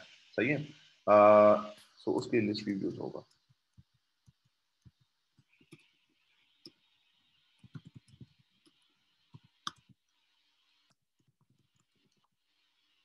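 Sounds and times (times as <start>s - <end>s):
keyboard keystrokes clicking: 7.6s - 8.3s.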